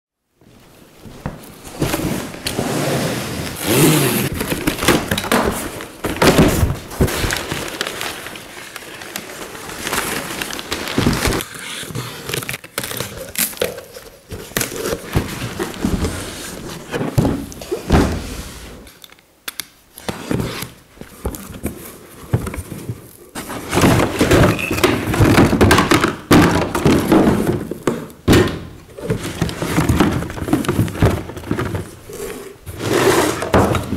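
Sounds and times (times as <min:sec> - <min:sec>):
cardboard rustling and scraping: 0:01.0 - 0:18.9, 0:20.0 - 0:28.1, 0:28.9 - 0:33.9
knocks and thuds of handling: 0:04.3 - 0:07.7, 0:14.5 - 0:18.4, 0:20.1 - 0:32.0, 0:33.4 - 0:33.9.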